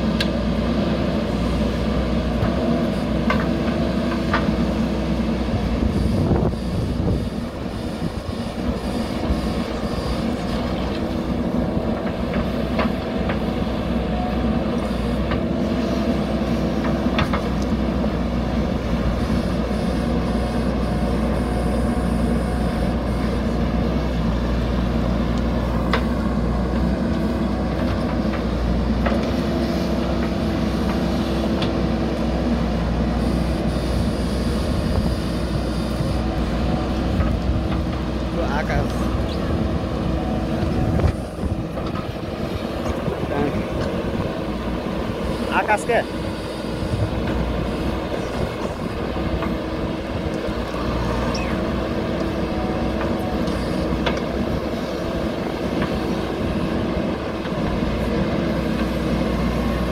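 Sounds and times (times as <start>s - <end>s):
diesel engine running under load: 0.0s - 59.9s
digger bucket clanking: 8.4s - 18.6s.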